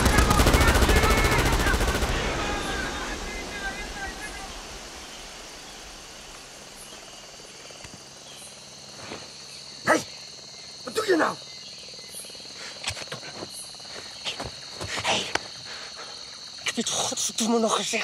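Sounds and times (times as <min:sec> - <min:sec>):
person exclaiming: 0:00.0 - 0:04.6
voices speaking: 0:00.0 - 0:05.4, 0:09.8 - 0:11.5, 0:12.5 - 0:18.0
insect chirring: 0:00.0 - 0:18.0
woodland hush: 0:00.0 - 0:18.0.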